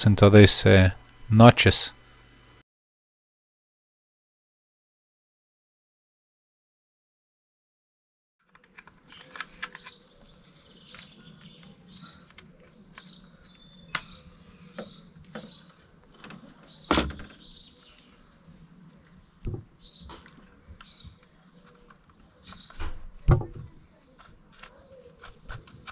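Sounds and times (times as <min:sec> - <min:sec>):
birds chirping: 0:08.7 - 0:25.9.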